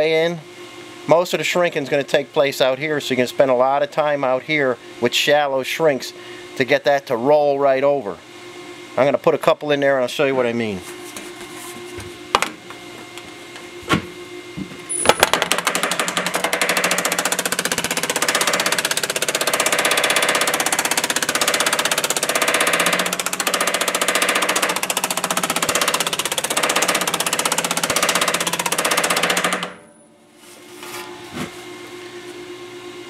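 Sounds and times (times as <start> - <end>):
power hammer striking sheet metal: 14.9 - 30.2.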